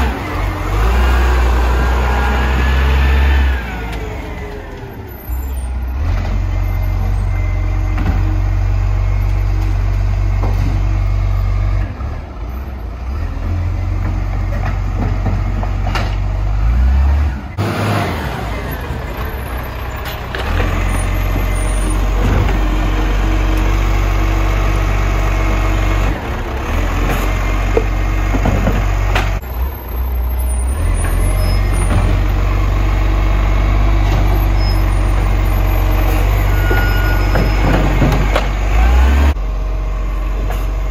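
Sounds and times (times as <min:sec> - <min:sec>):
diesel engine rumble: 0:00.0 - 0:40.9.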